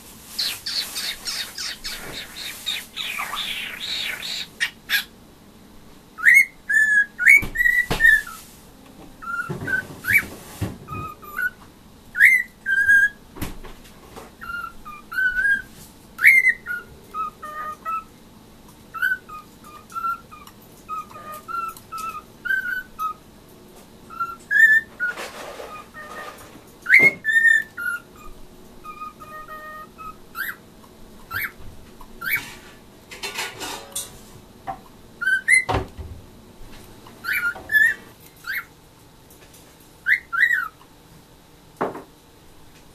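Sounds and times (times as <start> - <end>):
cockatiel whistling: 0.4 - 5.1, 6.2 - 8.4, 9.2 - 10.3, 10.9 - 13.2, 14.4 - 18.1, 18.9 - 23.2, 24.1 - 30.6, 31.3 - 31.6, 32.2 - 32.5, 35.2 - 35.8, 37.2 - 38.7, 40.0 - 40.8
kitchen noise: 25.0 - 27.3, 32.2 - 34.8.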